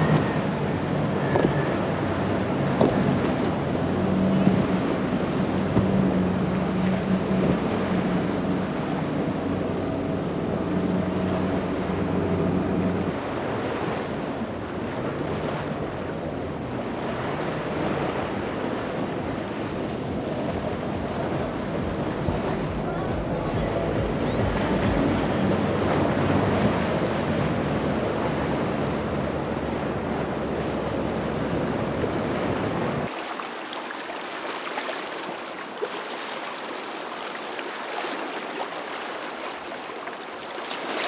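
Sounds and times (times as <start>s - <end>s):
outboard engine running: 0.0s - 33.2s
rushing spray and waves: 0.0s - 41.0s
wind on microphone: 15.3s - 33.1s.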